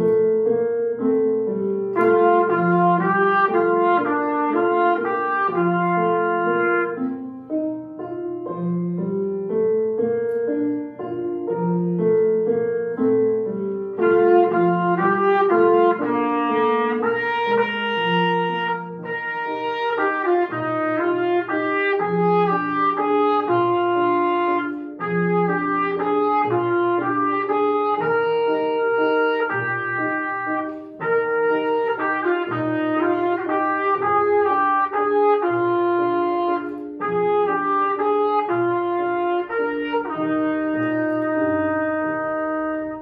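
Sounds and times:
solo trumpet waltz melody: 0:00.0 - 0:43.0
trumpeter breathing: 0:30.2 - 0:32.1.

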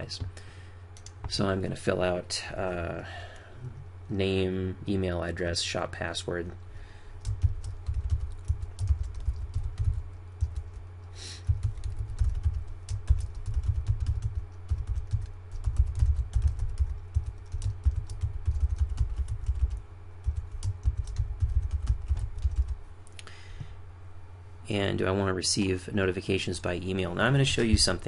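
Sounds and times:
typing on computer keyboard: 0:07.2 - 0:10.8, 0:11.4 - 0:22.8.

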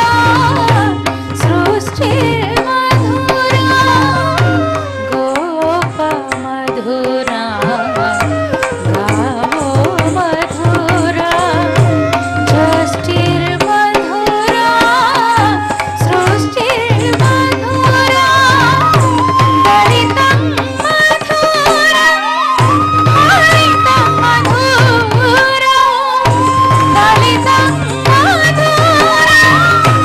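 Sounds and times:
drum beating rhythmic pattern: 0:00.0 - 0:30.0
sharp percussive strikes: 0:00.0 - 0:30.0.

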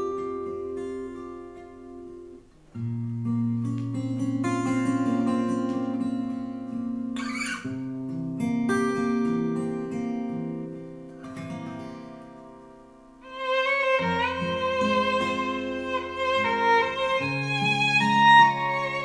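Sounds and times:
plucked acoustic guitar: 0:00.0 - 0:19.0
bowed strings: 0:13.2 - 0:19.0.

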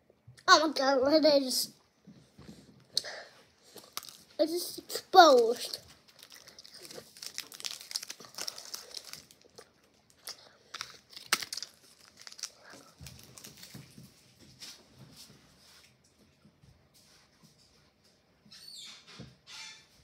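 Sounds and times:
candy wrapper crinkling: 0:03.6 - 0:14.0.

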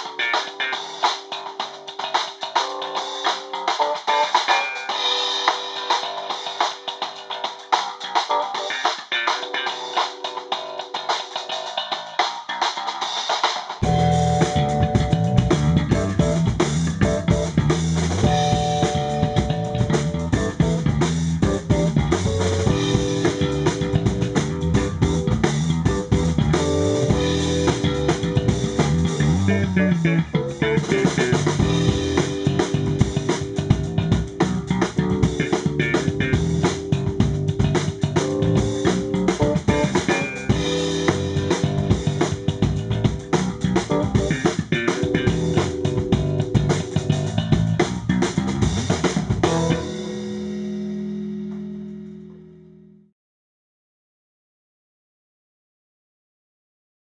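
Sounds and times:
keyboard chords: 0:00.0 - 0:12.0, 0:13.8 - 0:53.0
drum kit groove: 0:00.0 - 0:51.8
funk band playing: 0:00.0 - 0:51.9
electric bass guitar: 0:13.8 - 0:53.0.

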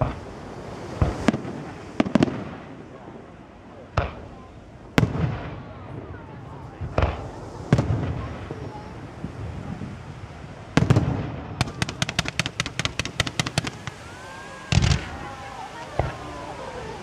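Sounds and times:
firework bangs: 0:00.0 - 0:17.0
firework pops: 0:00.9 - 0:02.4, 0:03.9 - 0:04.4, 0:06.8 - 0:08.8, 0:10.7 - 0:14.0, 0:14.7 - 0:15.2.

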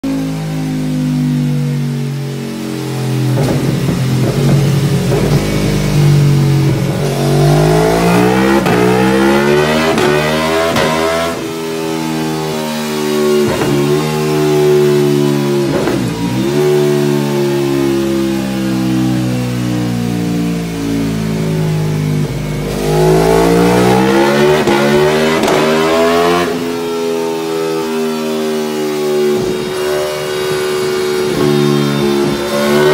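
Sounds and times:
motorcycle engine revving: 0:00.0 - 0:32.9.

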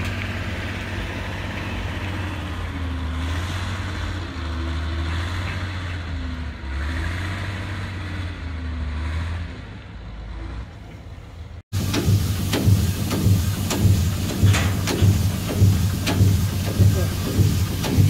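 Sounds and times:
engine idling: 0:10.8 - 0:18.0.

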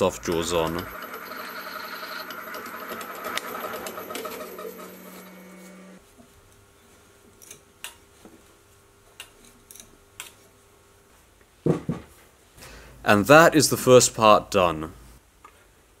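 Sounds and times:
milling machine spindle humming: 0:00.0 - 0:06.0.

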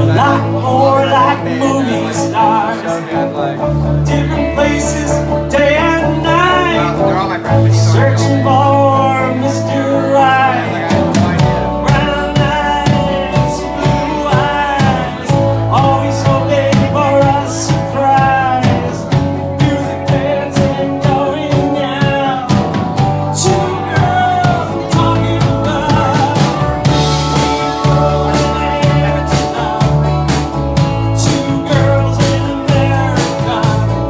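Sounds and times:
live country-rock band: 0:00.0 - 0:34.0
male lead vocal: 0:00.0 - 0:34.0.

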